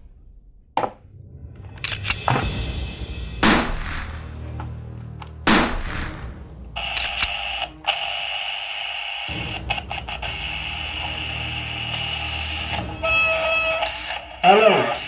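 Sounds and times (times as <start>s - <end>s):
toy gunfire shots: 6.8s - 7.6s
walkie-talkie hiss with high tone: 6.8s - 15.0s.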